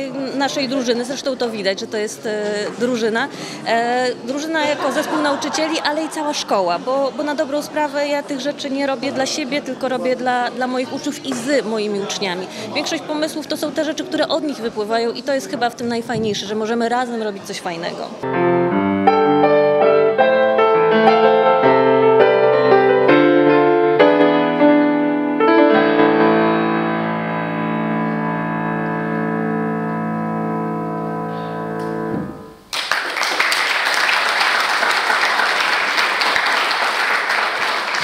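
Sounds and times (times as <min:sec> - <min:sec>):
grand piano chords: 0:18.2 - 0:32.7
audience applause: 0:32.7 - 0:38.0.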